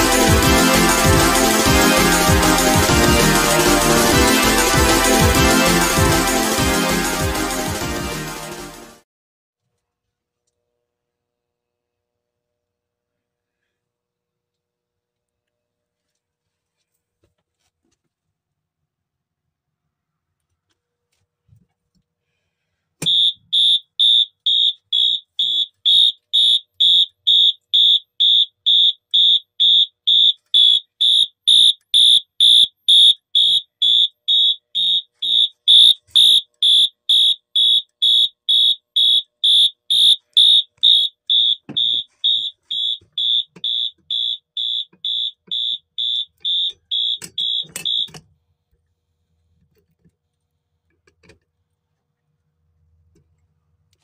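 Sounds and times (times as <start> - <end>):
pulsing fire alarm tone: 0.0 - 8.9, 23.0 - 48.1.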